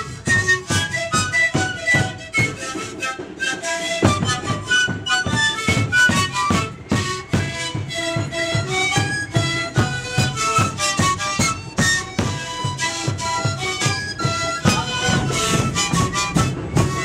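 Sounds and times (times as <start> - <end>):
panpipes playing: 0.0 - 17.0
large drums struck with sticks: 5.6 - 17.0.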